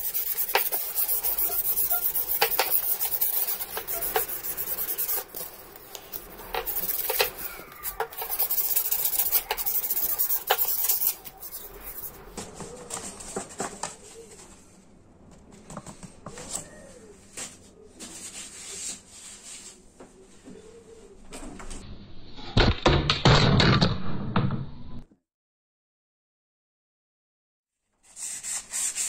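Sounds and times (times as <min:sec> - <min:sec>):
sandpaper rasping on metal: 0:00.0 - 0:12.2, 0:28.1 - 0:29.0
sandpaper rustling: 0:00.0 - 0:12.3.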